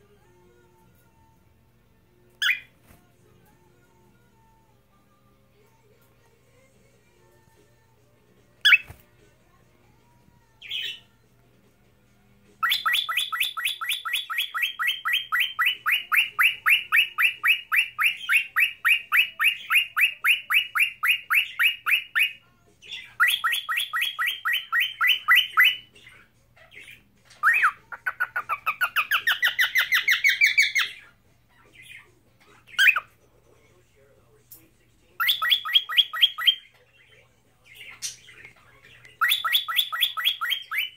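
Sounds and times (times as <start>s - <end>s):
cockatiel whistling and chirping: 2.4s - 2.7s, 8.6s - 9.0s, 12.6s - 31.1s, 32.8s - 33.0s, 35.2s - 36.6s, 39.2s - 40.9s.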